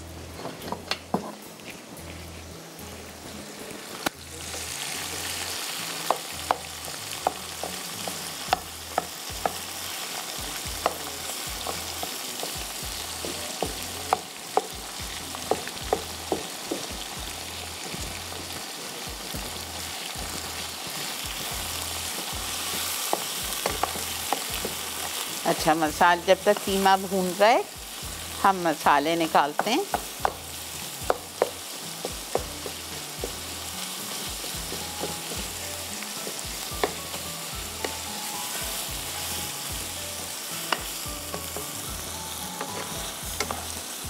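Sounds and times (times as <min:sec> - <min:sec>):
meat sizzling in hot oil: 0:00.0 - 0:44.0
spatula knocking against pan: 0:23.1 - 0:24.8, 0:29.6 - 0:33.4, 0:36.2 - 0:37.1.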